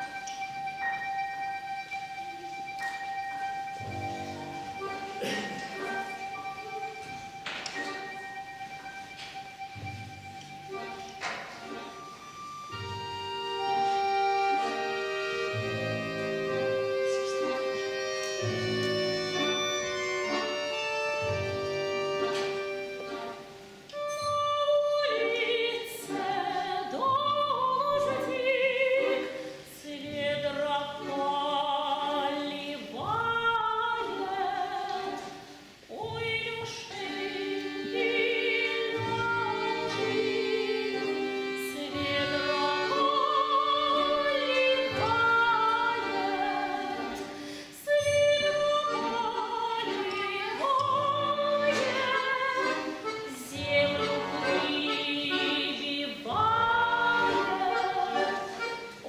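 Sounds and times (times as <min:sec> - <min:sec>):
accordion orchestra: 0:00.0 - 0:59.0
woman singing with vibrato: 0:24.0 - 0:59.0.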